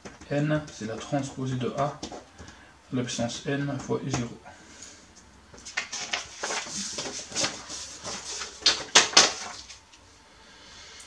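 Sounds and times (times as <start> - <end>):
paper sheets rustling: 5.6 - 9.8.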